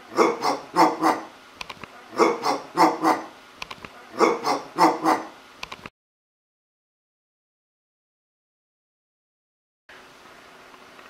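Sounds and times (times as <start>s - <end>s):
man imitating dog barking: 0.1s - 1.3s, 2.1s - 3.3s, 4.1s - 5.4s.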